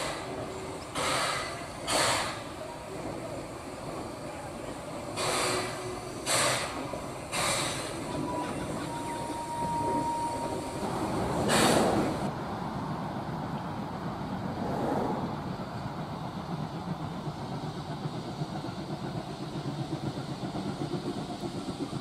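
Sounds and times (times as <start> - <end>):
steam locomotive exhaust chuffs: 0.0 - 12.3, 14.0 - 22.0
thin steady squeal: 8.0 - 11.0.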